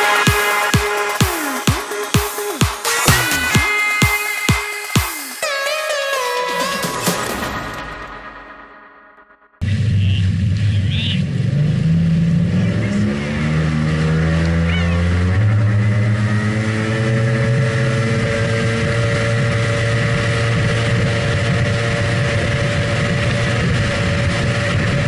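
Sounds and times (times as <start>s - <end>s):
jet ski engine running at speed: 9.7s - 25.0s.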